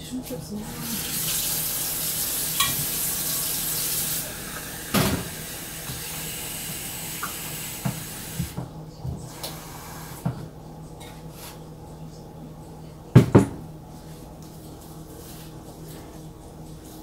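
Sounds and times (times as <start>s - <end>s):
tap running into sink: 7.2s - 8.7s.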